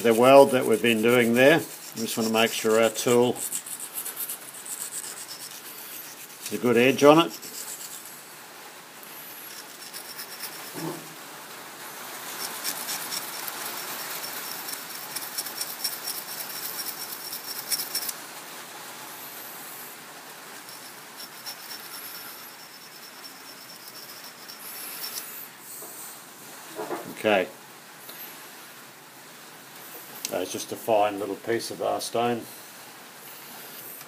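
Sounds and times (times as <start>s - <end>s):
sharpening stone rasping on steel: 0.0s - 8.2s, 9.2s - 10.9s, 12.3s - 18.2s, 20.6s - 25.4s.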